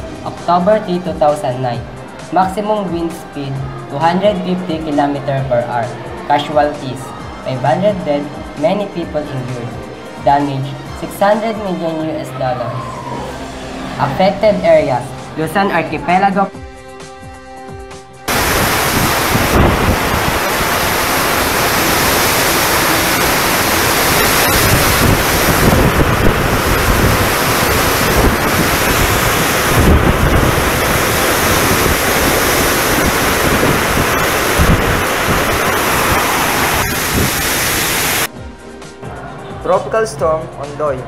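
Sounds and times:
torrential rain: 18.3s - 38.3s
wind buffeting microphone: 18.3s - 38.3s.

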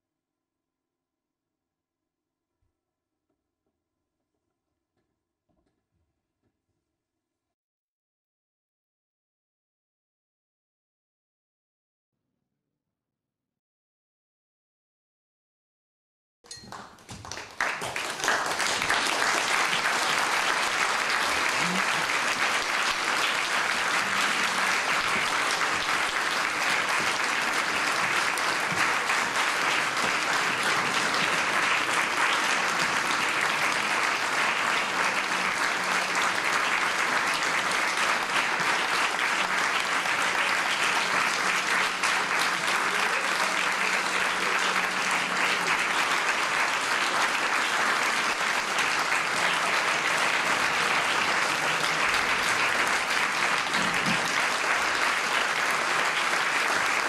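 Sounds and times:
audience applauding: 16.6s - 57.0s.

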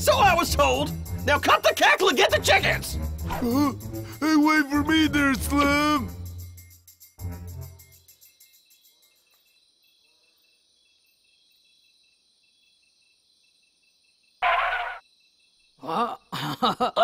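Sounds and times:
crickets chirping: 5.8s - 17.0s.

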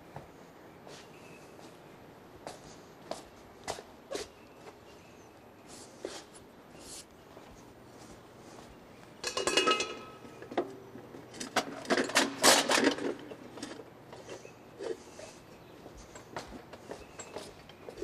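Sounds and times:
metal kitchenware clinking: 9.2s - 10.6s
metal utensils clanking: 9.2s - 10.7s, 11.3s - 13.8s.

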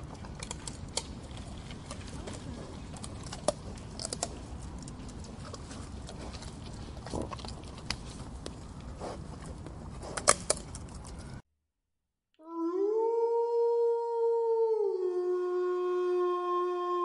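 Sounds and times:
deer chewing leaves and twigs: 0.0s - 11.4s.

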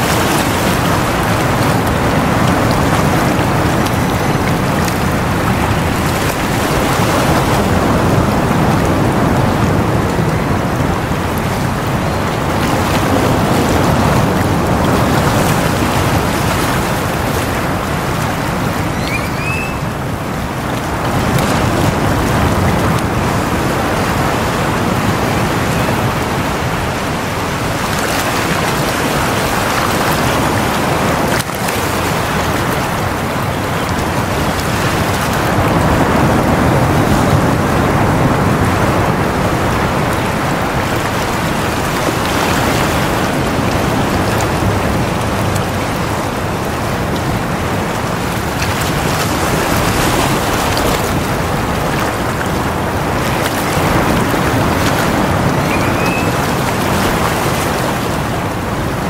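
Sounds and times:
sea waves on shore: 0.0s - 59.0s.

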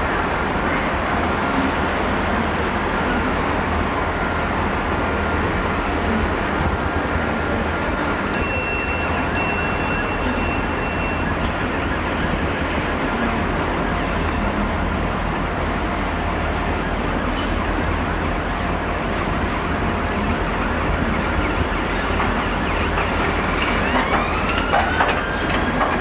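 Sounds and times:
train wheels on rail: 0.0s - 26.0s
thin high tone: 8.3s - 11.7s.

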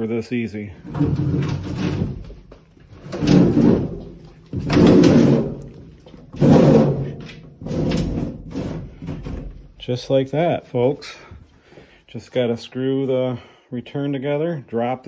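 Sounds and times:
sheet metal cabinet scraping: 0.8s - 9.7s.

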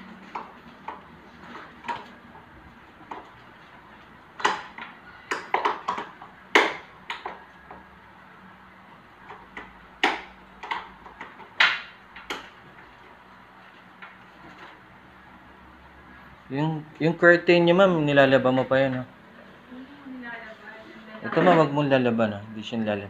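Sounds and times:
blind headrail clicks and knocks: 0.1s - 7.9s, 9.2s - 12.9s.

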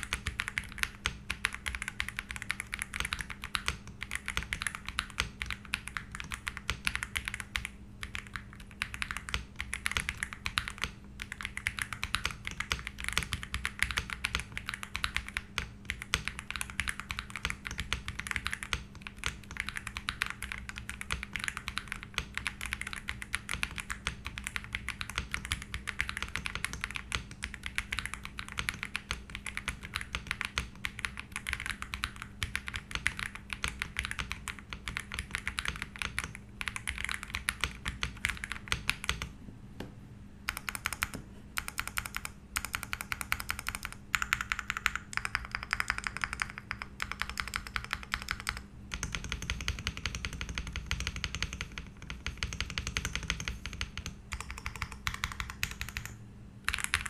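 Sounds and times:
mechanical keyboard typing: 0.0s - 39.3s, 40.4s - 57.0s.

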